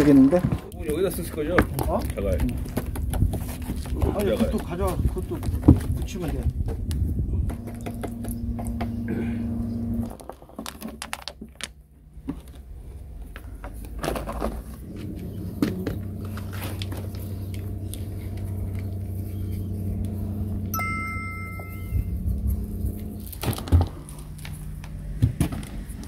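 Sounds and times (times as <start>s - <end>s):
steady low hum: 0.0s - 10.8s, 11.8s - 26.0s
pebbles scraping into wet cement: 10.0s - 11.8s
pebbles clicking together: 10.1s - 11.8s.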